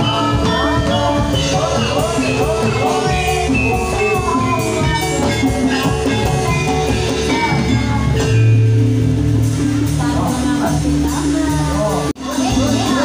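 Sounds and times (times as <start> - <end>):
drums beating: 0.0 - 13.0
ringing metallophone melodies: 0.0 - 13.0
deep low note: 8.4 - 12.0.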